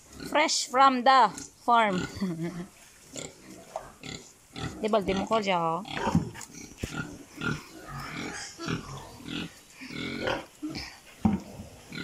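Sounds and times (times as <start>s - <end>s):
pig grunting: 5.9s - 12.0s.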